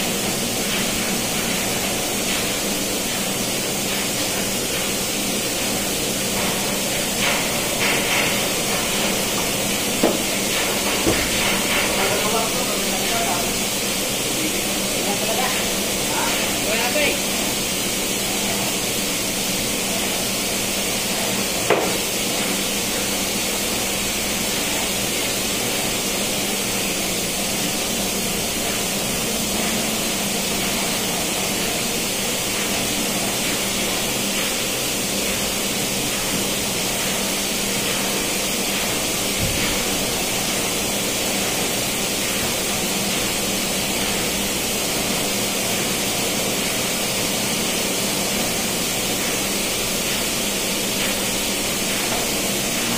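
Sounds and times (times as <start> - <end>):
engine room machinery noise: 0.0 - 52.9.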